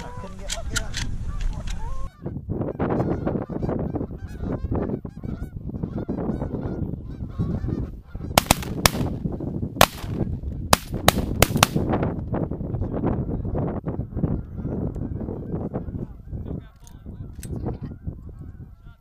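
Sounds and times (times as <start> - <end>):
geese honking: 1.3 - 8.6
shotgun shots: 8.4 - 9.2, 9.8 - 11.9.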